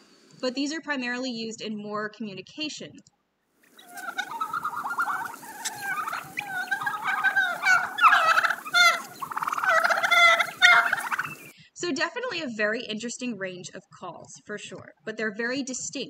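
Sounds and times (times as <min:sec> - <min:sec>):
wild turkeys calling: 0:03.6 - 0:11.5.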